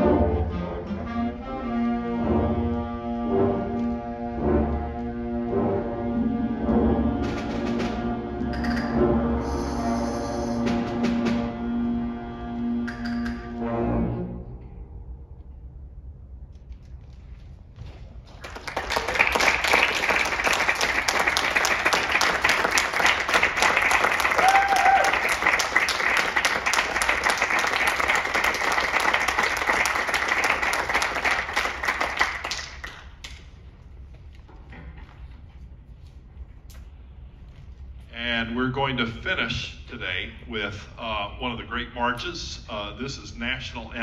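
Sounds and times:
audience applauding: 0:18.3 - 0:33.5.

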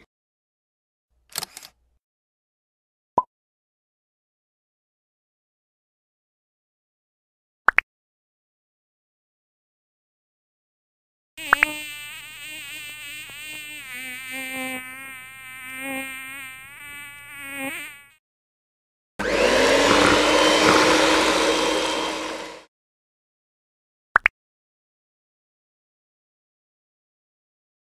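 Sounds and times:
click: 0:01.3 - 0:01.8
cartoon bee buzzing: 0:11.4 - 0:18.2, 0:19.2 - 0:22.7
steady whirring: 0:19.2 - 0:22.7.

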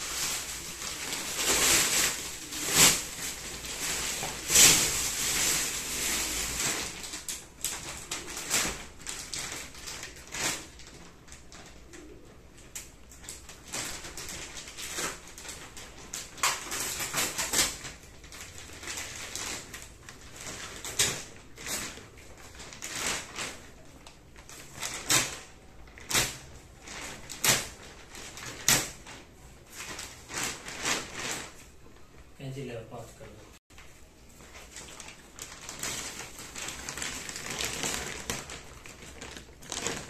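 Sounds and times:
plastic wrapping crinkling: 0:00.0 - 0:32.7, 0:33.7 - 0:40.0.

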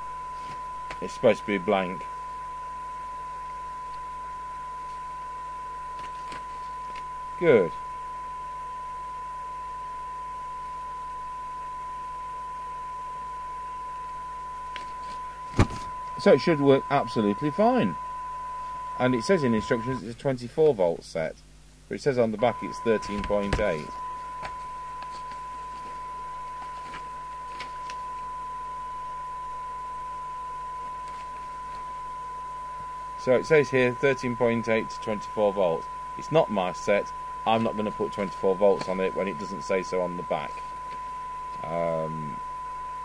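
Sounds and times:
steady test tone from radio: 0:00.0 - 0:43.0
paper pages rustling: 0:06.0 - 0:07.0.

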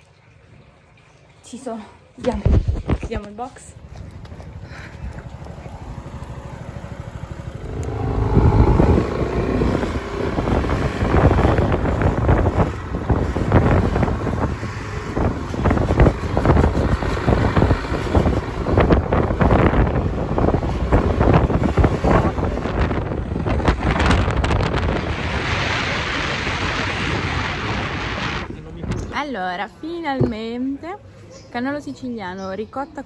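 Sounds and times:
wind buffeting microphone: 0:02.4 - 0:29.5
motorcycle engine running: 0:03.6 - 0:22.3.

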